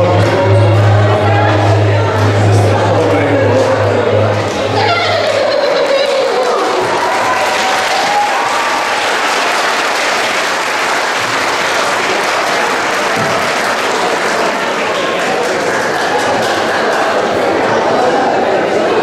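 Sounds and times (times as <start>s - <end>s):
audience applauding: 4.5s - 18.2s.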